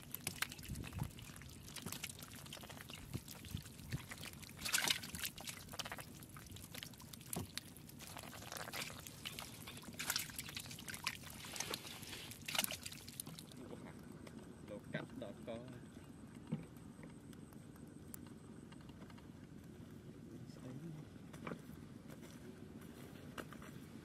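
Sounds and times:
fish flopping on wet mud: 0.0s - 13.6s
water splashes: 0.0s - 13.7s.

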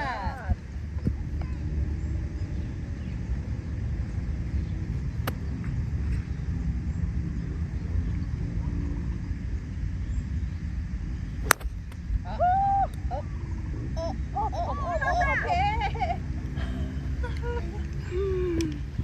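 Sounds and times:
steady low rumble: 0.0s - 14.4s
golf club striking ball: 11.4s - 12.1s.

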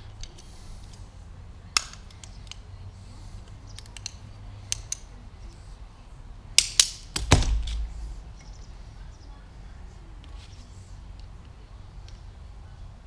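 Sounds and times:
light plastic and metal clicks: 3.4s - 5.1s.

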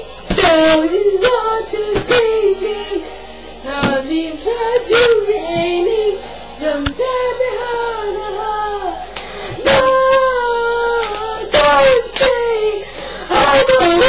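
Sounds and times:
girl singing loudly distorted: 0.3s - 2.7s, 3.7s - 5.8s, 9.6s - 12.7s, 13.3s - 14.0s.

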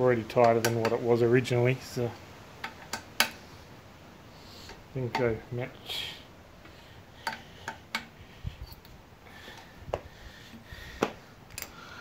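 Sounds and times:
metal tool clicks and taps: 0.4s - 1.0s, 2.6s - 3.4s, 7.2s - 8.1s.

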